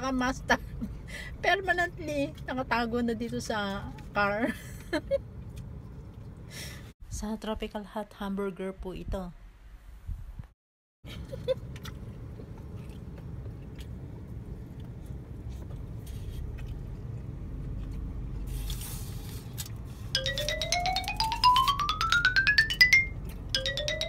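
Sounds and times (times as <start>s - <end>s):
rising xylophone-like notes: 20.2s - 24.0s.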